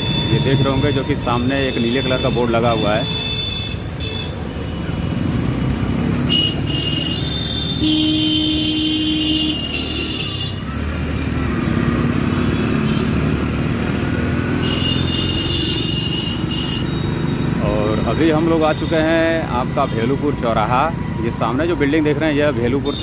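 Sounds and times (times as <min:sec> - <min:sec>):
vehicle horns: 0:00.0 - 0:04.8, 0:06.1 - 0:10.8, 0:14.3 - 0:19.4, 0:22.8 - 0:23.0
road noise: 0:00.0 - 0:23.0.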